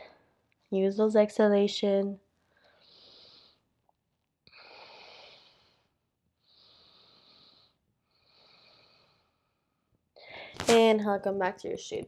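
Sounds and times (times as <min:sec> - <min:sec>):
woman breathing faintly: 0:04.5 - 0:10.7.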